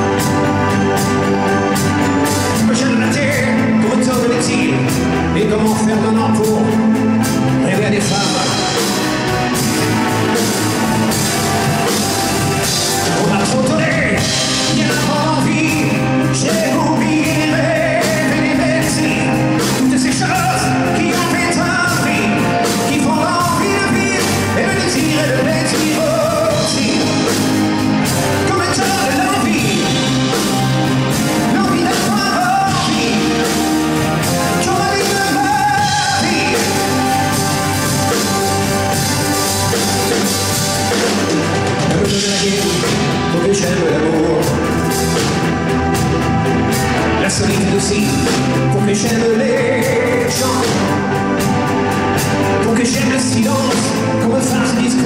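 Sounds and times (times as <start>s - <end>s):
drum kit: 0.0s - 55.0s
keyboards: 0.0s - 55.0s
man singing into a microphone: 2.6s - 6.9s, 7.6s - 8.8s, 13.1s - 27.6s, 28.4s - 30.4s, 31.4s - 33.8s, 34.5s - 37.2s, 41.8s - 44.8s, 47.2s - 51.1s, 52.6s - 55.0s.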